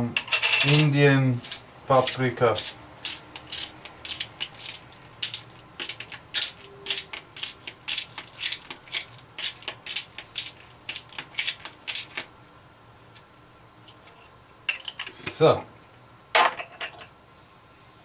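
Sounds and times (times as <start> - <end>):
hand spice mill grinding: 0.6 - 12.3.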